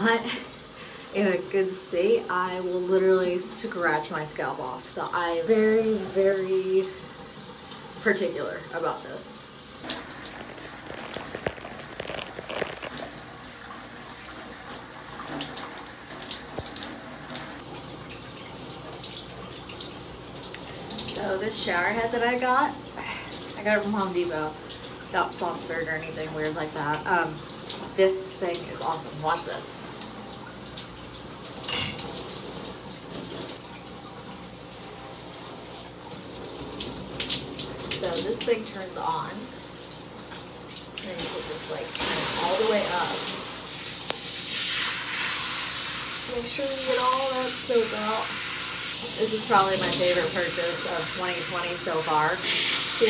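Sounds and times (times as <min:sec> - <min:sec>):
shower water spraying: 0:05.2 - 0:33.6, 0:34.7 - 0:53.0
water splashing: 0:05.6 - 0:33.9, 0:35.8 - 0:53.0
shower head spraying water: 0:09.8 - 0:17.6, 0:40.8 - 0:53.0.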